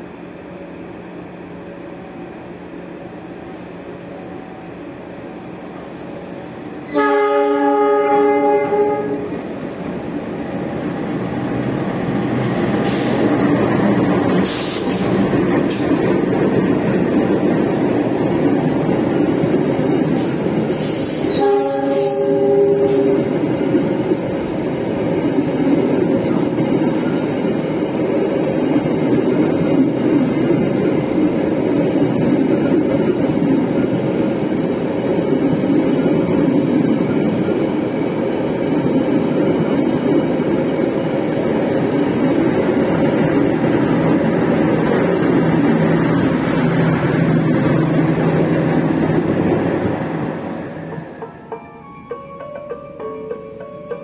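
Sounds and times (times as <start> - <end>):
train wheels rumbling on rails: 0.0 - 54.0
train horn blast: 6.8 - 9.4, 21.0 - 23.4.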